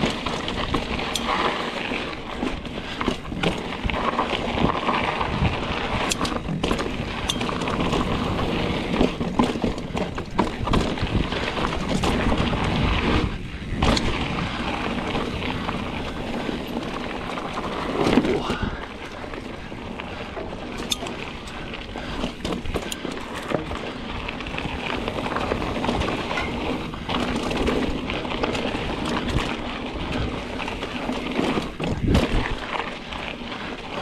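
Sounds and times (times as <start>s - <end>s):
bike clattering over rocks: 0.0s - 34.0s
tyres rushing on loose dirt: 0.0s - 34.0s
wind across microphone: 2.6s - 32.9s.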